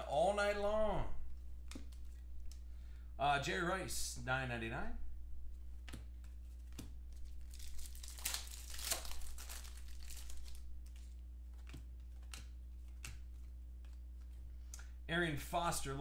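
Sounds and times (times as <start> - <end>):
steady low hum: 0.0 - 16.0
foil wrapper crinkling and tearing: 7.2 - 11.2.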